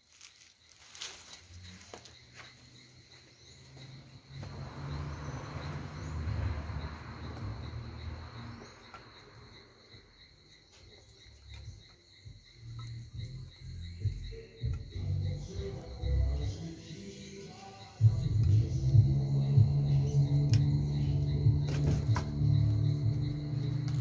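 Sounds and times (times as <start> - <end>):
insect trilling: 0.1 - 24.0
low rumble: 18.0 - 24.0.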